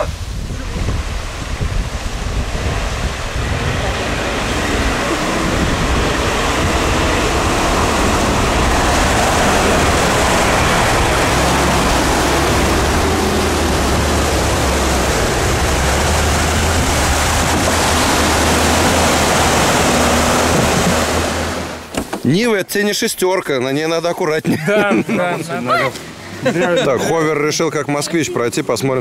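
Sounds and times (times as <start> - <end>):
engines droning: 0.0 - 21.9
muddy water rushing: 0.0 - 29.0.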